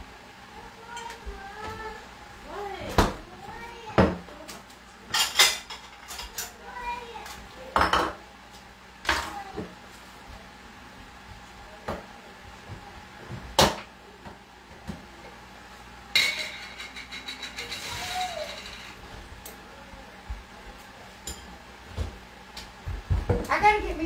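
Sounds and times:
dishes and utensils clattering: 5.1 - 6.6, 16.1 - 19.0, 21.2 - 21.6.

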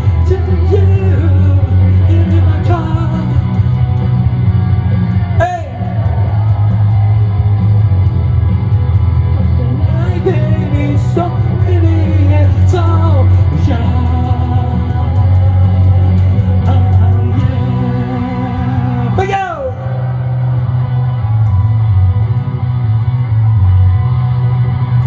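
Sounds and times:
man singing: 0.0 - 3.8, 5.4 - 6.5, 9.8 - 20.2
electric guitar chords: 0.0 - 25.0.

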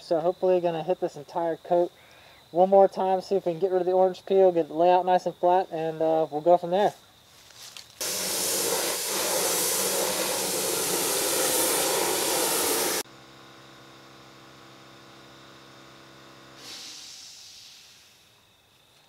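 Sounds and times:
paint spray gun hissing: 8.0 - 13.1, 16.5 - 18.2.

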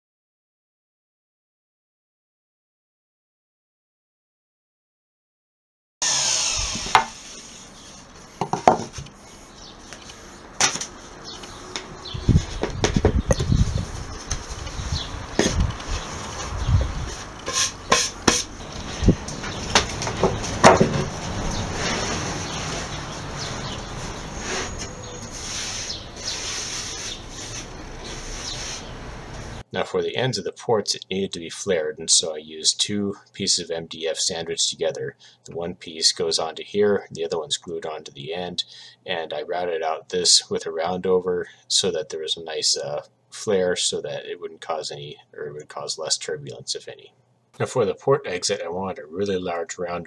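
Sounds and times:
router motor winding down: 6.0 - 7.6
wooden panels scraping: 6.1 - 29.6
sharp knocks: 19.7 - 21.1.

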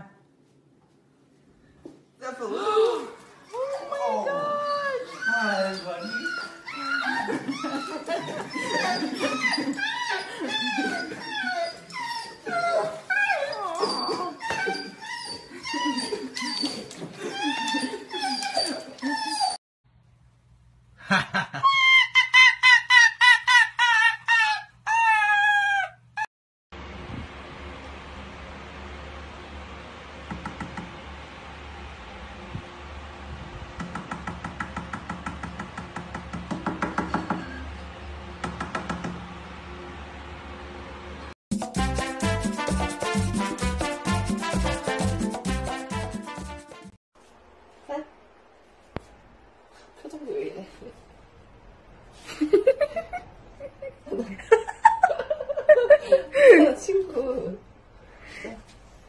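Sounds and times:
dog whining: 2.8 - 19.6, 23.8 - 26.3
fingers knocking on glass: 33.8 - 37.5.

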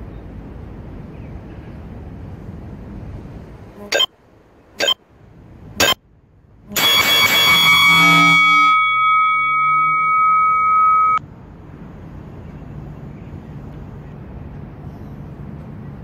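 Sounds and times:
faint city traffic: 0.0 - 16.0
timer chime ringing: 6.8 - 11.2.

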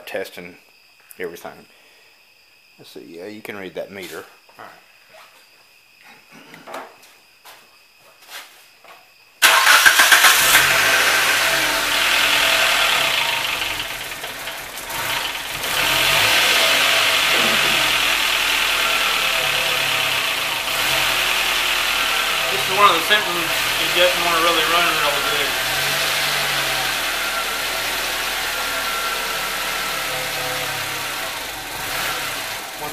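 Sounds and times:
car engine running fast: 10.2 - 32.9.

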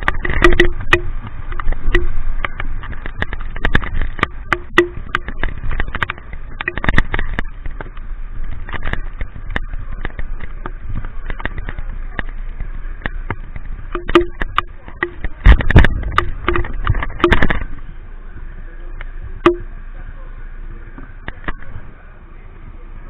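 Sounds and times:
knocks and rubbing against camera: 0.0 - 17.8
raindrops tapping on camera: 0.0 - 18.0, 19.0 - 19.7, 20.9 - 21.8.

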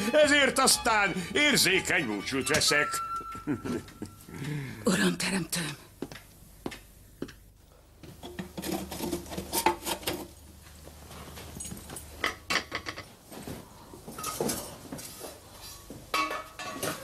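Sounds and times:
pots and pans clinking: 16.1 - 17.0.

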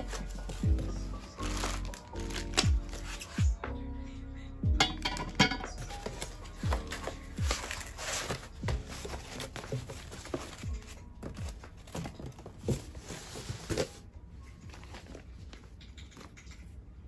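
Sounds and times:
foam packing sheets rustling: 0.0 - 3.4, 5.8 - 14.0
lo-fi music with low beat: 0.0 - 17.0.

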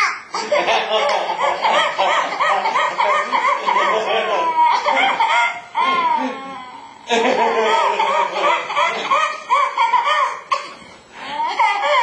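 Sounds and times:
baby laughing: 0.0 - 12.0.

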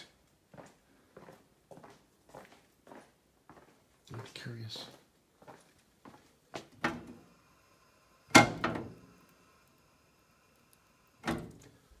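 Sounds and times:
faint high whine: 6.9 - 12.0.

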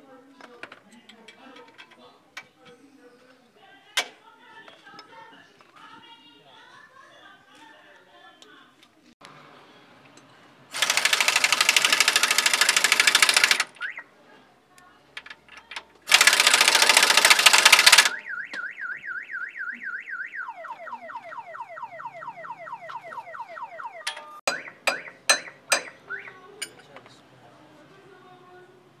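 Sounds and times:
car alarm siren: 13.8 - 14.1, 18.0 - 25.2, 26.1 - 26.4.

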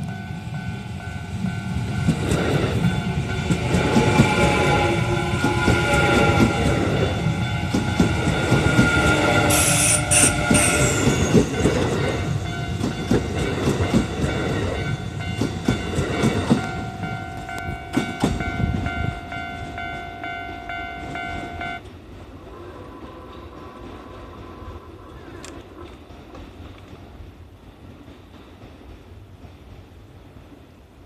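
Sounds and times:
level-crossing warning bell: 0.0 - 21.9
train wheels clacking: 0.0 - 31.0.

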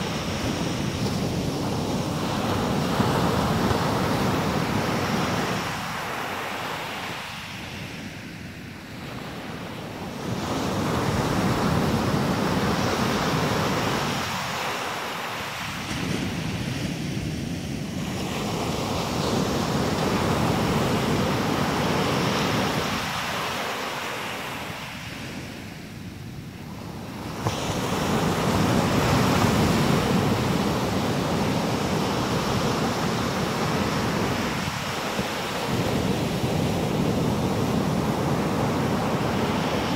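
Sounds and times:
surf breaking on beach: 0.0 - 7.8, 26.7 - 39.9.

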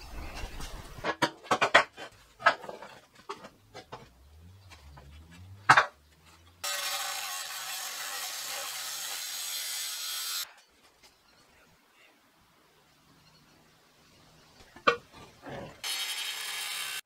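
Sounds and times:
angle grinder grinding steel: 6.6 - 10.4, 15.8 - 17.0.

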